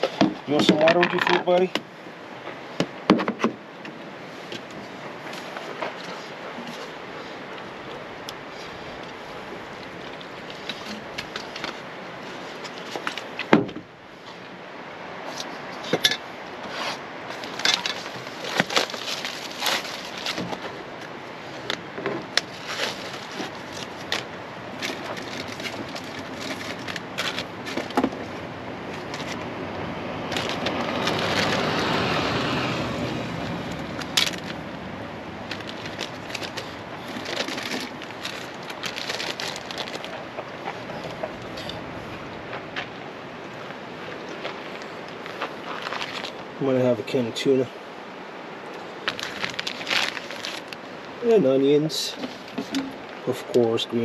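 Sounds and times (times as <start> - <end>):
plastic containers clicking and knocking: 0.1 - 1.8
rustling: 4.2 - 14.5, 15.2 - 47.2, 48.7 - 54.0.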